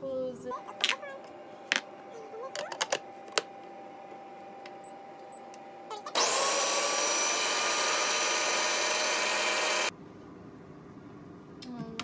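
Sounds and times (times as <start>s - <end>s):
blender motor running: 6.1s - 9.9s.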